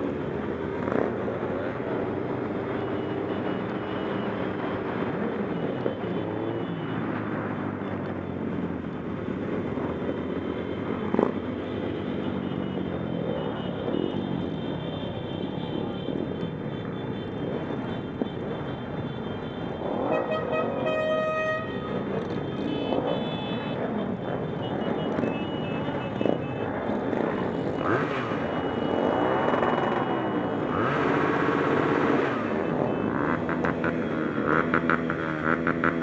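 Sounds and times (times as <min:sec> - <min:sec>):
motorcycle engines revving: 0:00.0 - 0:36.0
vehicle horn: 0:17.9 - 0:26.6.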